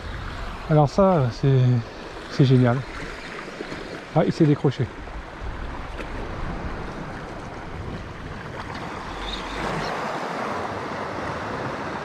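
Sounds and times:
wind on microphone: 5.0s - 12.0s.

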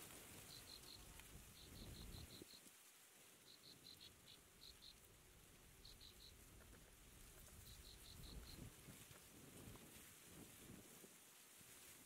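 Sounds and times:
insect chirping: 0.4s - 2.7s, 3.4s - 5.1s, 5.7s - 6.4s, 7.4s - 8.7s.

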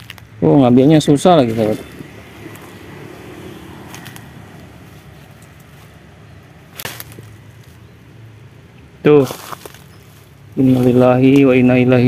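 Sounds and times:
dry grass rustling underfoot: 0.0s - 11.8s.

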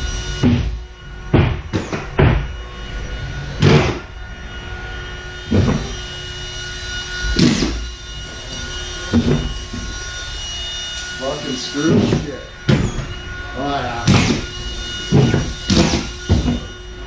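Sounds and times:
steady mechanical hum: 0.0s - 17.0s
dull thuds of drywall work: 0.4s - 2.5s, 14.1s - 14.5s, 15.1s - 16.7s.

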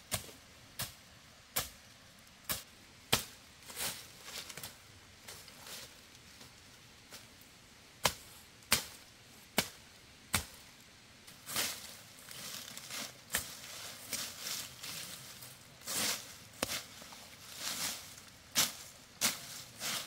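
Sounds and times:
rustling: 3.6s - 7.5s, 11.3s - 20.0s.

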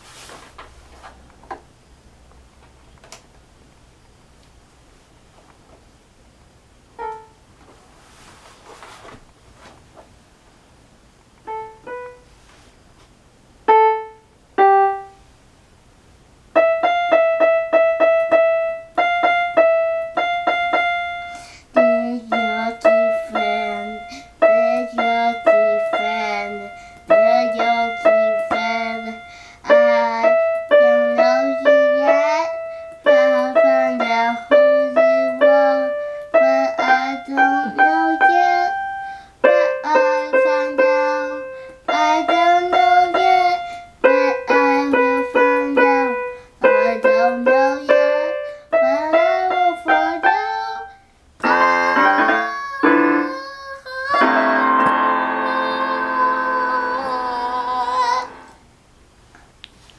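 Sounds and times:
electronic toy keyboard: 16.6s - 53.5s, 54.1s - 57.2s
child singing: 21.7s - 58.6s.

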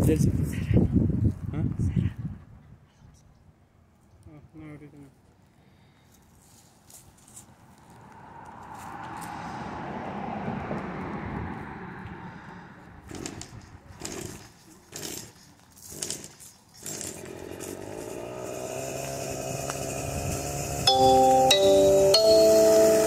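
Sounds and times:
string trimmer cutting dry grass: 13.1s - 23.0s.

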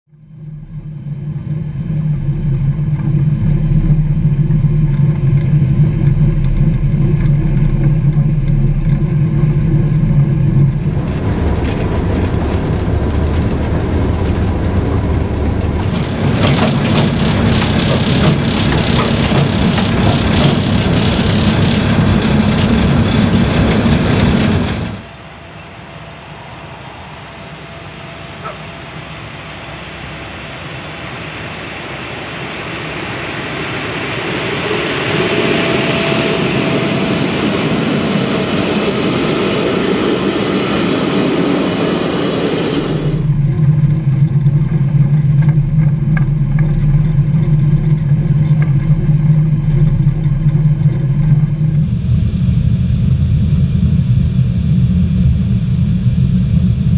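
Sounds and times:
locomotive electrical hum: 0.1s - 56.9s
rush of wind and running noise: 1.8s - 25.1s.

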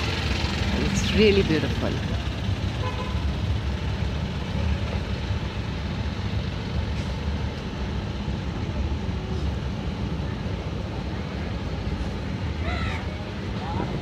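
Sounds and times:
boat engine rumbling: 0.0s - 6.8s.

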